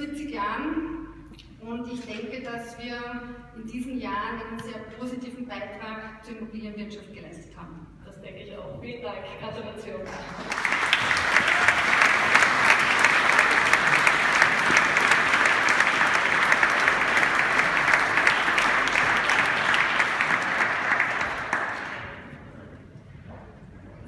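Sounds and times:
audience applauding: 0:10.1 - 0:22.4.

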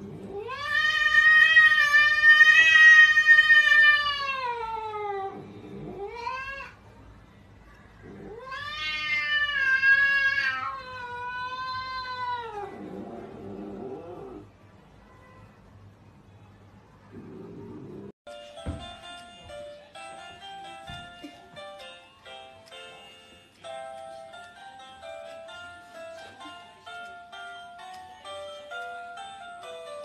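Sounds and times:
cat yowling: 0:00.1 - 0:06.8, 0:08.0 - 0:14.4.

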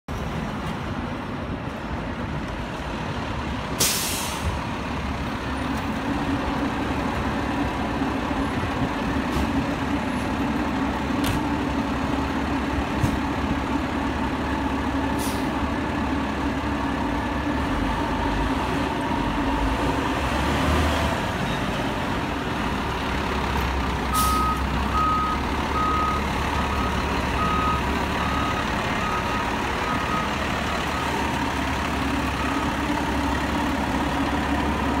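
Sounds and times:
diesel engine running: 0:00.2 - 0:35.0
air brake hissing: 0:03.8 - 0:04.6, 0:15.2 - 0:15.5, 0:24.2 - 0:24.5
reversing alarm beeping: 0:24.1 - 0:31.2, 0:32.3 - 0:32.8.

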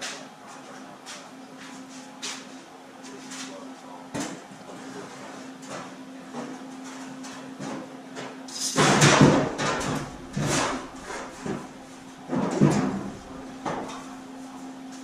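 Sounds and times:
low shop hum: 0:00.0 - 0:15.0.

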